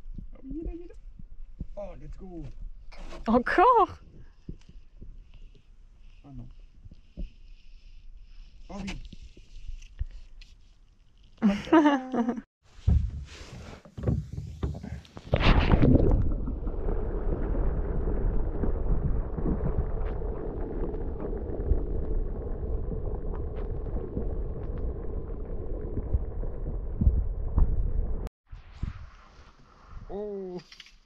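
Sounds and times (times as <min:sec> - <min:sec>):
muffled underwater rumble: 0:15.3 - 0:28.3.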